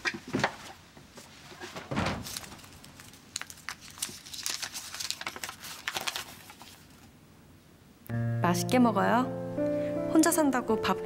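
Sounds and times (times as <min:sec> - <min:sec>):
cloth and paper rustling: 0:00.0 - 0:07.2.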